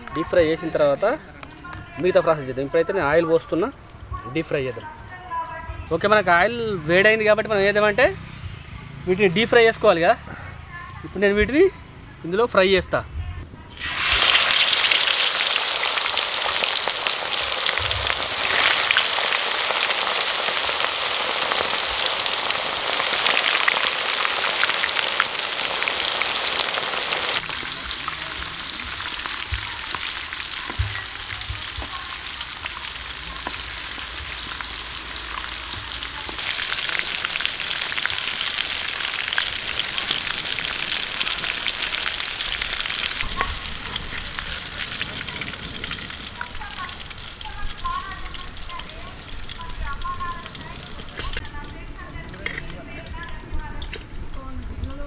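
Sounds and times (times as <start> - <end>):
oil sizzling while deep-frying: 13.7 - 51.7.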